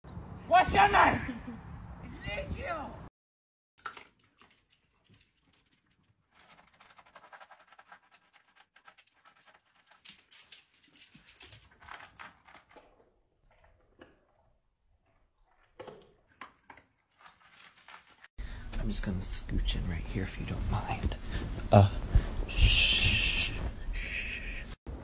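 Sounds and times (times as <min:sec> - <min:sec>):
small dogs eating and drinking: 0:03.9 - 0:19.2.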